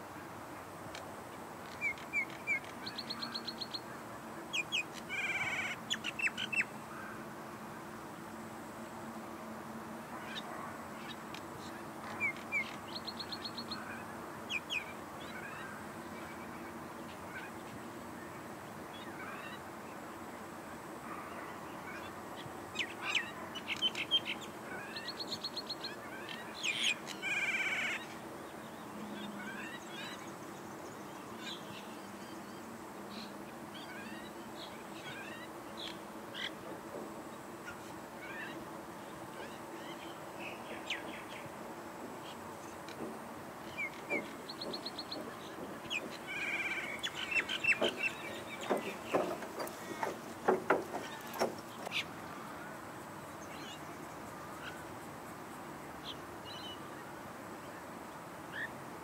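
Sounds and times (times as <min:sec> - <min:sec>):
mynas chattering calls: 0:43.6 - 0:52.2.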